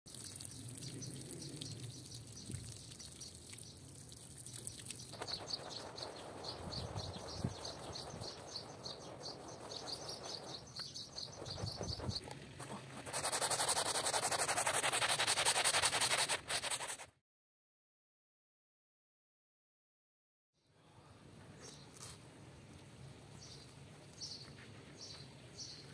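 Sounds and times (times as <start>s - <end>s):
brush scrubbing a wet rug: 5.1s - 17.1s.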